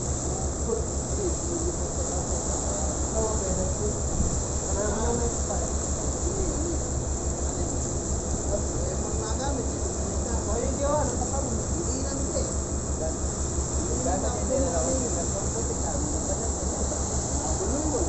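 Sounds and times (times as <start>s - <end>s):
high hiss: 13.5s - 18.0s.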